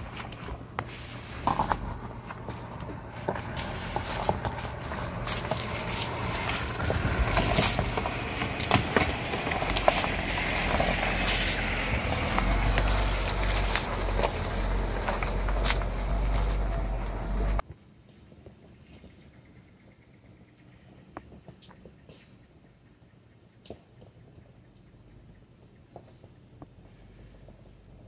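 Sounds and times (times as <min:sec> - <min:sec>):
low engine rumble: 0:00.0 - 0:17.7, 0:24.3 - 0:28.0
tires crunching over stones: 0:00.0 - 0:19.6, 0:23.6 - 0:28.0.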